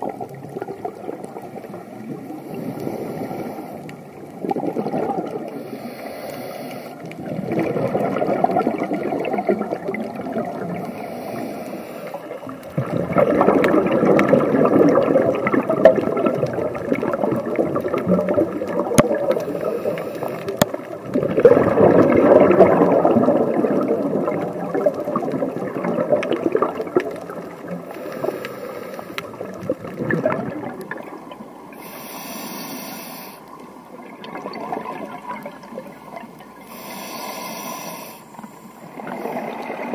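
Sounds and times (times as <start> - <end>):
hissing regulator inhalations: 2.2 - 4.2, 5.5 - 7.2, 10.8 - 12.4, 19.3 - 20.6, 27.9 - 29.5, 31.7 - 33.6, 36.6 - 39.6.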